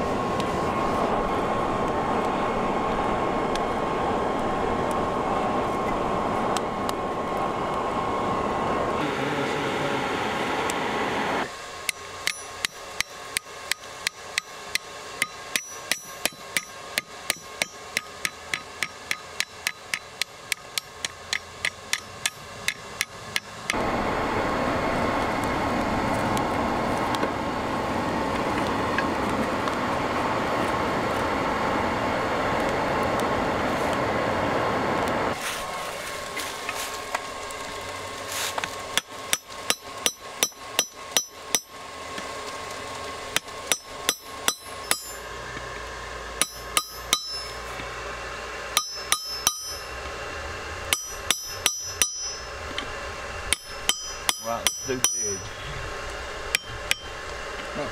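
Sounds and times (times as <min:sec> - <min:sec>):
forge blower and fire rushing: 0:00.0 - 0:57.9
hammer striking steel bar on anvil: 0:11.8 - 0:23.8, 0:39.0 - 0:41.8, 0:43.4 - 0:45.2, 0:46.4 - 0:47.6, 0:48.8 - 0:49.9, 0:50.9 - 0:52.5, 0:53.5 - 0:55.6, 0:56.5 - 0:57.2.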